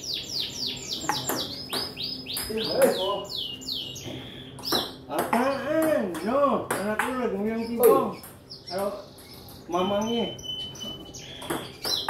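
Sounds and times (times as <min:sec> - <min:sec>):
bird chirping high falling notes: 0:07.2 - 0:12.0.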